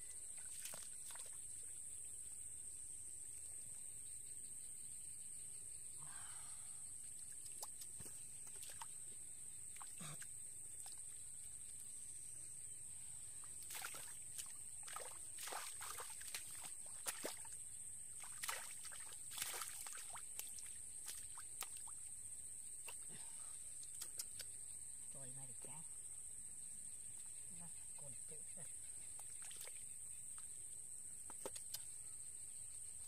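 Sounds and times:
hands splashing in muddy water: 0:00.4 - 0:01.4, 0:13.6 - 0:17.5, 0:18.2 - 0:21.9.

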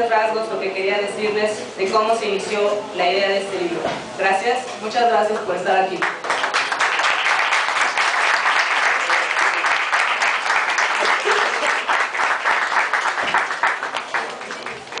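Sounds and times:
applause: 0:06.0 - 0:15.0.

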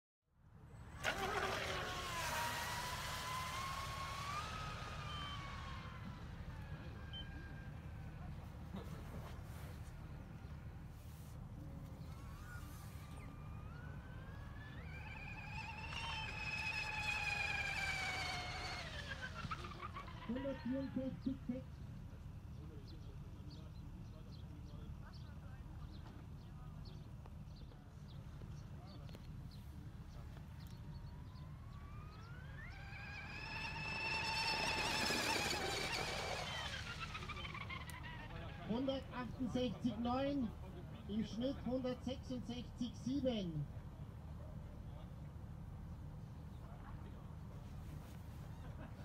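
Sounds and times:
model speed boat whining past: 0:00.4 - 0:21.3, 0:29.8 - 0:41.4.

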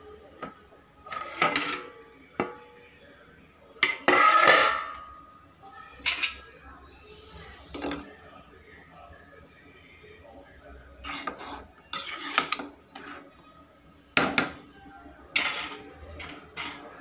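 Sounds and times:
metal lid clanking on pot: 0:03.8 - 0:05.0.

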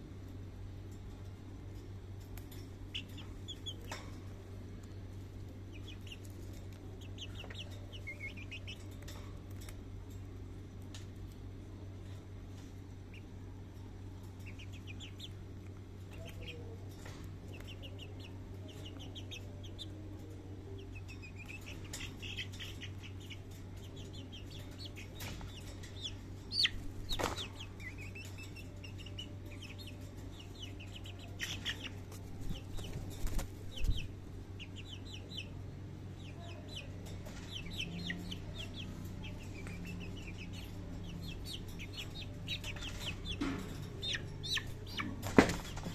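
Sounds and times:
chickens clucking: 0:01.3 - 0:45.9
birds scuffling: 0:13.7 - 0:35.1, 0:36.8 - 0:45.9
wings flapping: 0:27.0 - 0:27.6, 0:32.2 - 0:34.1, 0:44.9 - 0:45.9.

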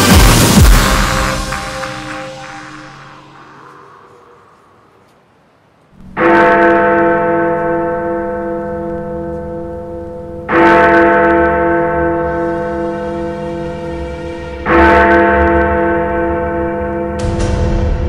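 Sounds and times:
deep bell tolling: 0:00.0 - 0:05.0.

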